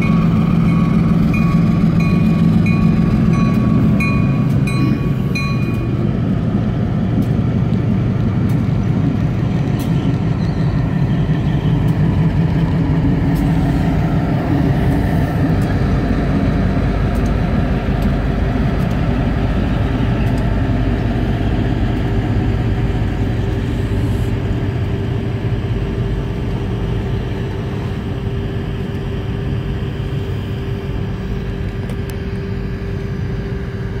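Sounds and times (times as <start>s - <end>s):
diesel locomotive engine running: 0.0s - 34.0s.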